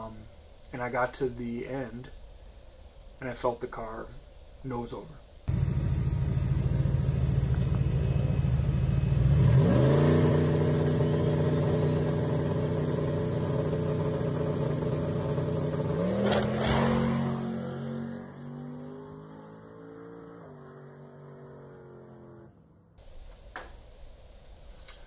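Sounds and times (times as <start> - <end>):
drag car engine revving: 5.5 - 22.8.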